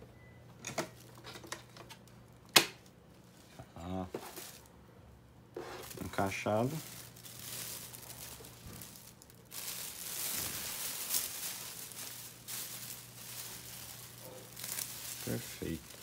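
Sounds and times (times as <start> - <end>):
plastic bag crinkling: 4.1 - 4.7, 5.6 - 16.0.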